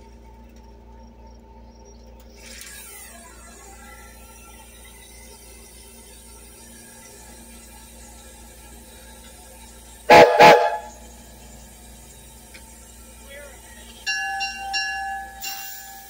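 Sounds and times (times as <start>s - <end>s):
signal mechanism whir: 0.0s - 16.0s
steady low hum: 3.9s - 15.5s.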